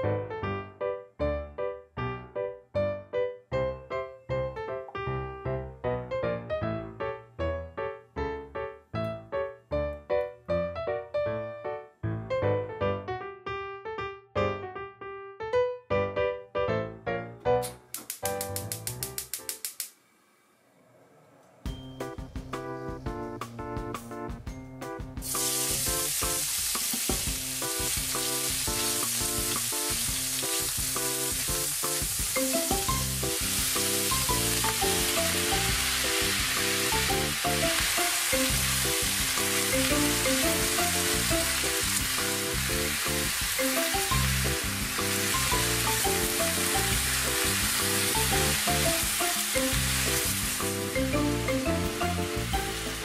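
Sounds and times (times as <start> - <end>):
background music: 0.0 - 19.7, 21.6 - 53.0
meat sizzling in a wok: 25.2 - 53.0.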